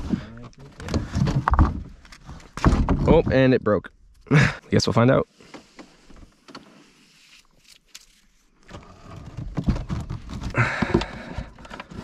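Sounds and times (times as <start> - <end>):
gear knocking against canoe hull: 9.3 - 12.0.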